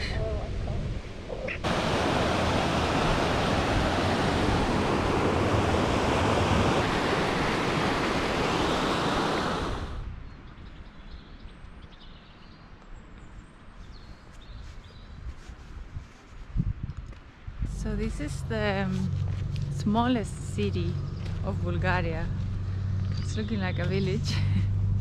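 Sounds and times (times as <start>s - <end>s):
stream water rushing over weirs: 1.5s - 10.1s
quiet outdoor background: 8.5s - 25.0s.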